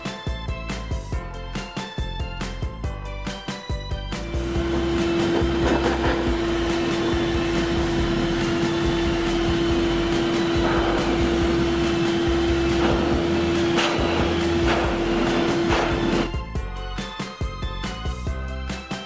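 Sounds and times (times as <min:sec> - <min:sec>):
pet blow dryer running: 0:04.3 - 0:16.3.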